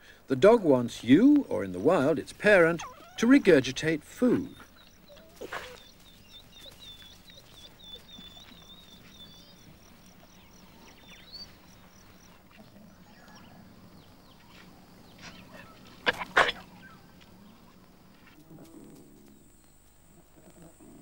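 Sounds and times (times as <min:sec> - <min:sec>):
high bird-like chirping: 0:04.3 - 0:13.6.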